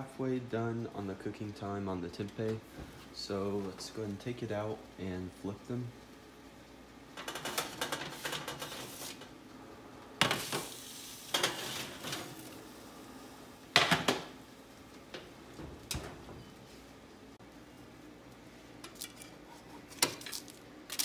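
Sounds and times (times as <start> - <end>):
baking sheets rattling on oven rack: 7.2 - 9.2
baking sheets clanking on stovetop: 7.2 - 9.3, 10.2 - 12.4.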